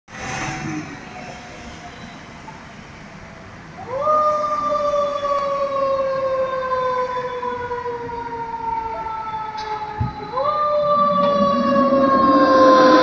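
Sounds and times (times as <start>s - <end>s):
siren wailing: 3.8s - 13.0s.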